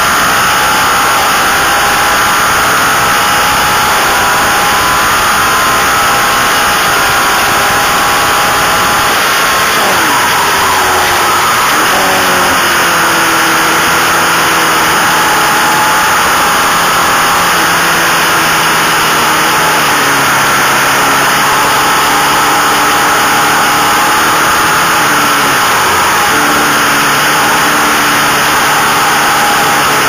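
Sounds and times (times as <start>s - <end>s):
racing motorcycle engine: 0.0s - 30.0s.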